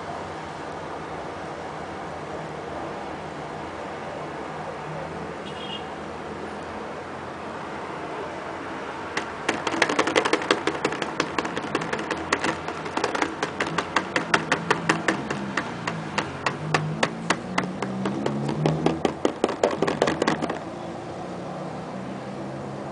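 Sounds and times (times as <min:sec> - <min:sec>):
fingertips tapping on firm fluid: 0:09.2 - 0:20.6.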